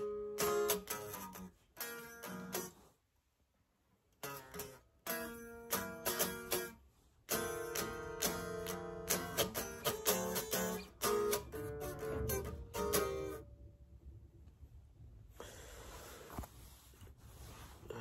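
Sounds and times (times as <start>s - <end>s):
electric guitar playing: 0.0s - 2.7s, 4.2s - 13.5s.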